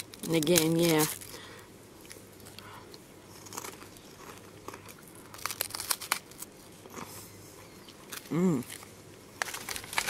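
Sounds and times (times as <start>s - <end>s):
snack packet crinkling: 0.0s - 1.4s, 3.4s - 6.7s, 8.0s - 10.0s
crunchy bite into wafer: 3.4s - 7.1s.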